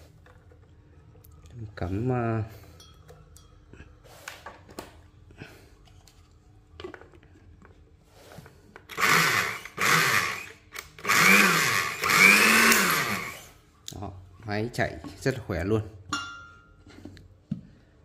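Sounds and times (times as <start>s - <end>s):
blender motor whirring: 8.9s - 13.6s.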